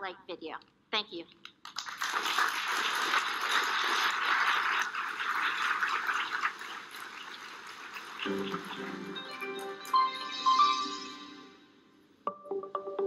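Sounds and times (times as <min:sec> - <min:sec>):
audience applauding: 0:01.7 - 0:09.9.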